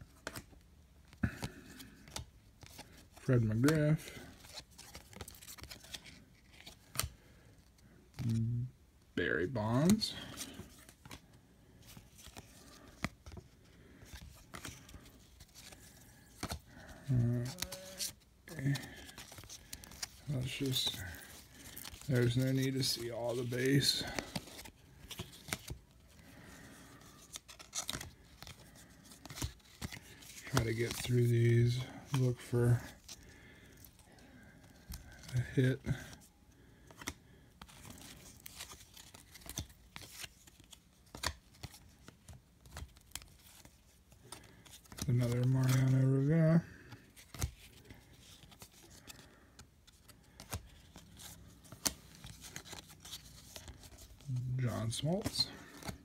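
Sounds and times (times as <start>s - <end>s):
cards rustling and flicking: 0.0s - 8.7s, 9.5s - 56.0s
cards flicking and sliding: 14.1s - 25.8s, 36.9s - 41.8s.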